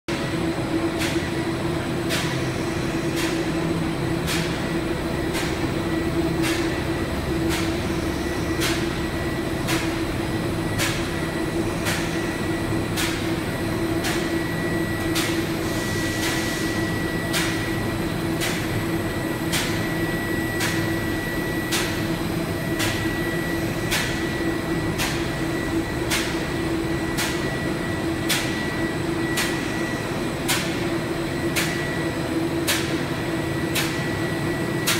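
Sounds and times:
sharp mechanical tick: 29.4s - 29.6s.

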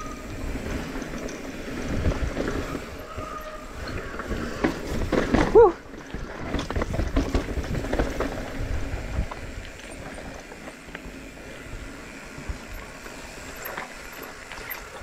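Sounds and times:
bike rattling over rocks: 3.8s - 15.0s.

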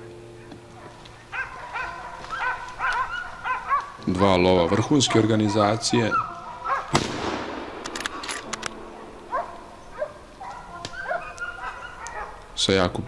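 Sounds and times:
dog yelping: 0.3s - 7.0s, 8.9s - 12.6s
gunshot: 6.9s - 8.6s
light clicks: 7.8s - 8.8s, 10.3s - 12.5s.

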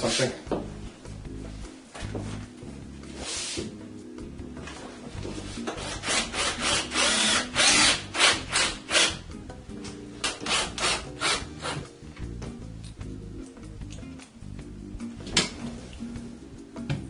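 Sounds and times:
background music: 0.0s - 17.0s
cordless drill driving screws: 5.8s - 9.1s.

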